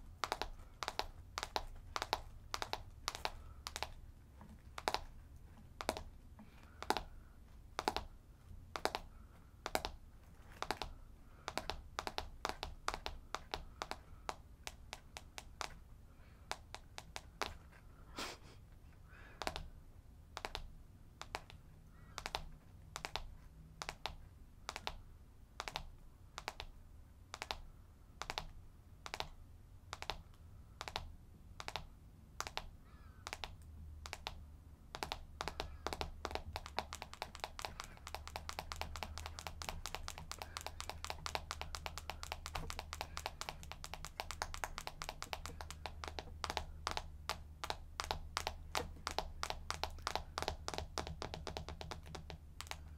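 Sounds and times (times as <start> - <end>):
fingernails tapping on camera: 0.2 - 4.0, 4.8 - 5.1, 5.8 - 7.1, 7.8 - 8.1, 8.7 - 15.8, 30.8 - 52.9.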